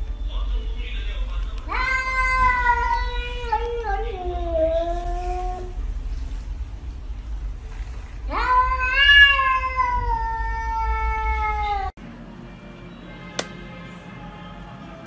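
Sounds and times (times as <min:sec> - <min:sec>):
faint hum: 0:00.0 - 0:12.2
cat yowling: 0:01.7 - 0:05.8, 0:08.2 - 0:11.9
sharp click: 0:13.4 - 0:13.6.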